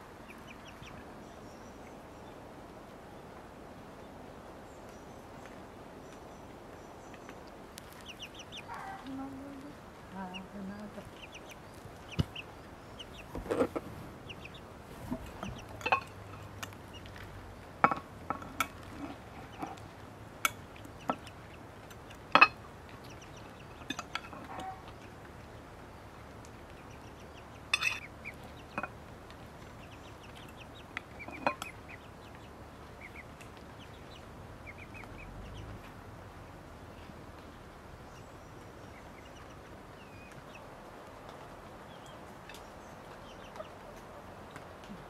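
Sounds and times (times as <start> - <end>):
spoons clinking on plates: 15.8 - 16.5, 27.7 - 28.1.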